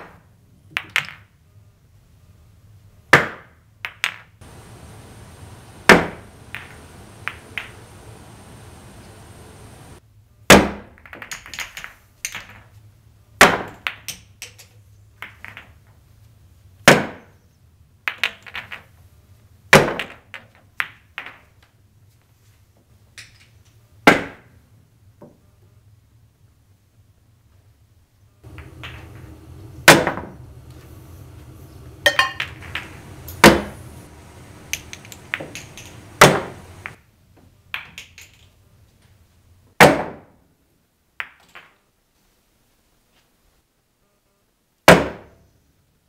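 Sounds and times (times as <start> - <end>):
billiard balls clicking: 3.9 - 10.0, 11.0 - 12.7, 28.4 - 37.0, 37.8 - 38.6
cue tip striking ball: 4.4 - 10.0, 28.4 - 37.0
steady hiss: 4.4 - 10.0, 27.5 - 37.2.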